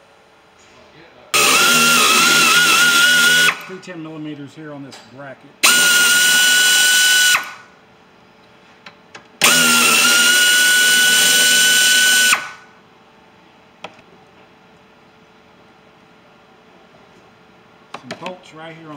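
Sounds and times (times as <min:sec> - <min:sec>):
power drill motor whine: 0:01.4 - 0:03.8, 0:05.6 - 0:07.7, 0:09.4 - 0:12.7.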